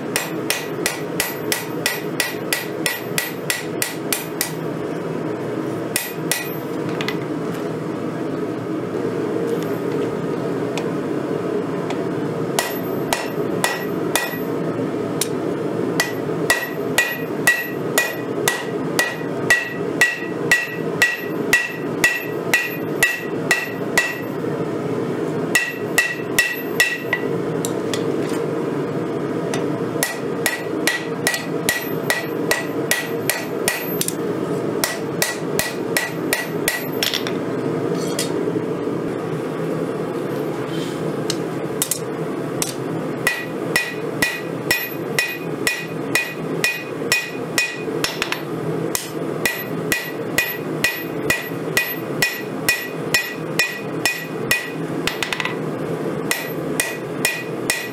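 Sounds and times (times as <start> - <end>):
hammer striking steel on anvil: 0.0 - 4.6, 6.0 - 6.7, 12.6 - 14.5, 16.0 - 24.4, 25.5 - 27.3, 29.5 - 34.2, 34.8 - 37.3, 42.6 - 55.6, 56.3 - 57.9.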